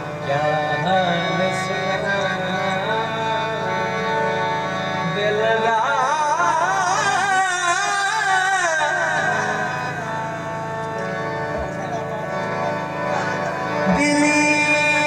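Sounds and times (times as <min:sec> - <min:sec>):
harmonium held notes: 0:00.0 - 0:15.0
man singing: 0:00.2 - 0:04.0, 0:05.0 - 0:10.2, 0:13.8 - 0:15.0.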